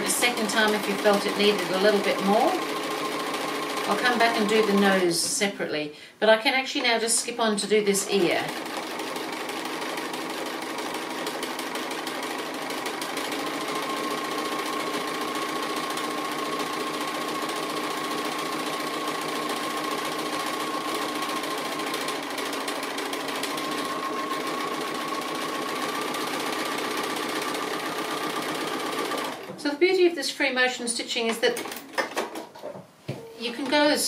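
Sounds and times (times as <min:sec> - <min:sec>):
sewing machine running: 0:00.0 - 0:05.0, 0:08.1 - 0:29.5.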